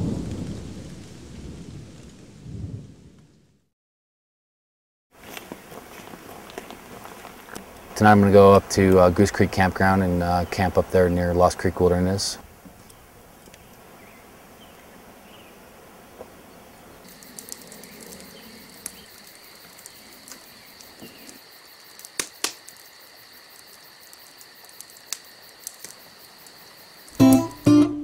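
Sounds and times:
high-pitched insect trill: 0:17.0 - 0:27.7
sharp clicks and pops: 0:17.1 - 0:27.6.

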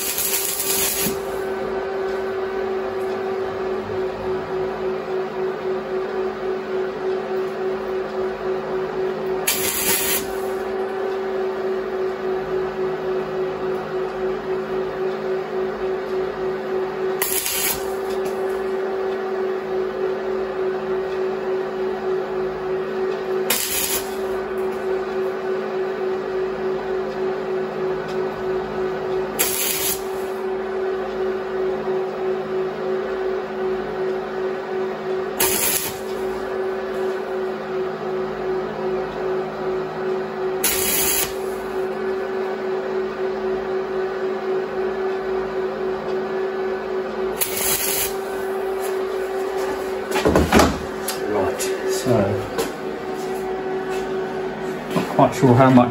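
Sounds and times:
welder arc crackling and sizzling: 0:00.0 - 0:03.1, 0:09.3 - 0:11.0, 0:16.6 - 0:18.8, 0:23.0 - 0:25.0, 0:29.4 - 0:30.8, 0:35.4 - 0:37.5, 0:40.6 - 0:42.2, 0:47.2 - 0:55.9
welding machine hum: 0:00.0 - 0:55.9.

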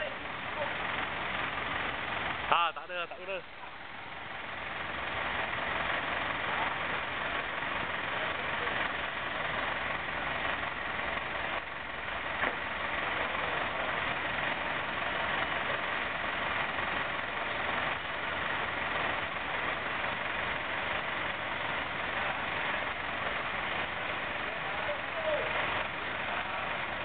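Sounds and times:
engine idling: 0:00.0 - 0:27.0.

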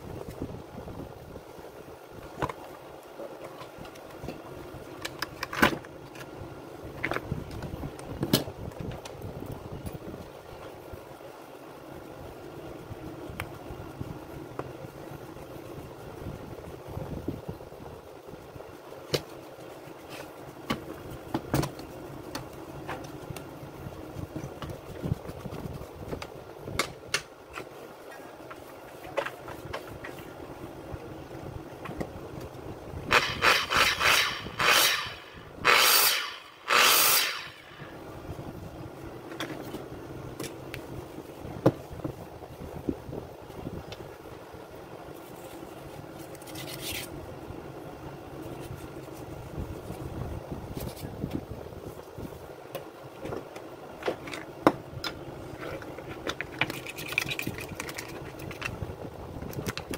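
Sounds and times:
steady low hum: 0:00.0 - 0:59.9
loud rushing air bursts: 0:33.1 - 0:38.0.

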